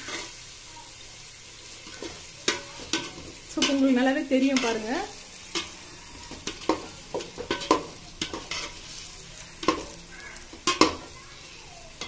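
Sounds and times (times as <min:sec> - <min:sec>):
frying sizzle: 0:00.0 - 0:12.0
metal spoon scraping pot: 0:04.5 - 0:11.0.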